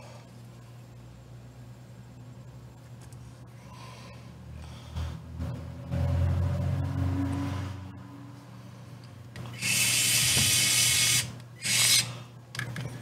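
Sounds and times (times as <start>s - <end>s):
electric screwdriver motor whirring: 9.5s - 12.1s.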